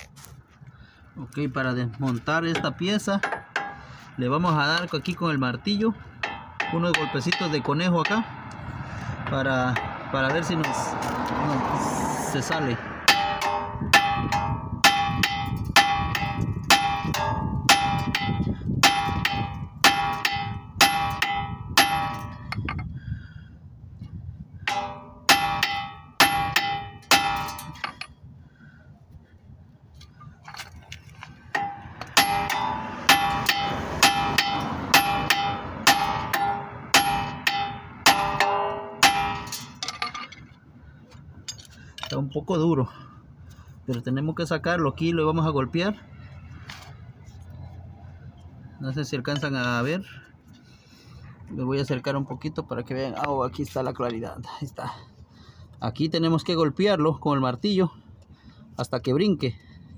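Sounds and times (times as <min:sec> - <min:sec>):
hammer clanging on metal: 0:02.5 - 0:03.9, 0:06.2 - 0:08.4, 0:09.7 - 0:11.1, 0:12.5 - 0:22.8, 0:24.7 - 0:28.2, 0:31.5 - 0:40.5.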